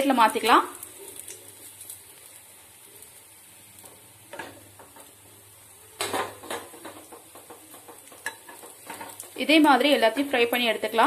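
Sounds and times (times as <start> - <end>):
oil sizzling: 0.0 - 11.0.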